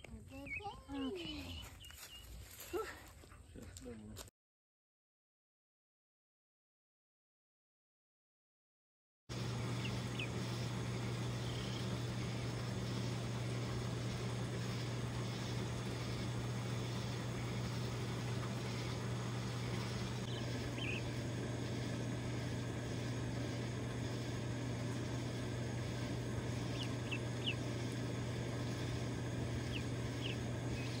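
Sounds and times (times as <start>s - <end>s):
steady low hum: 9.3s - 31.0s
chicks peeping: 9.4s - 22.7s, 24.9s - 31.0s.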